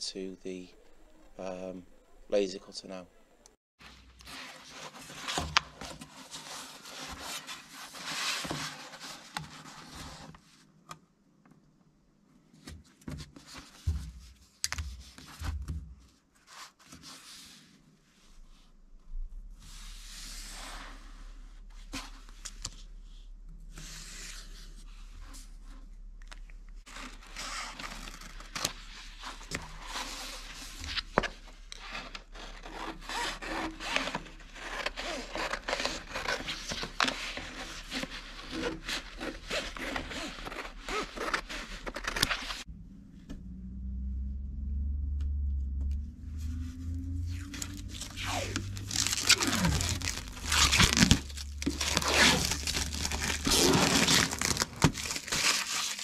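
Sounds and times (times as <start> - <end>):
low steady hum: 42.7 - 55.6
hands rubbing on vinyl sheets: 46.9 - 56.0.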